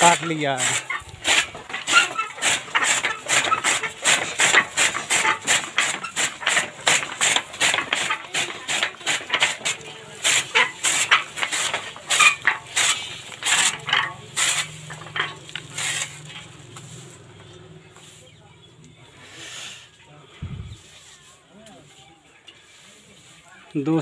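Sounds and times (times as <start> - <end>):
chaff cutter blade chopping: 0.0 - 16.3.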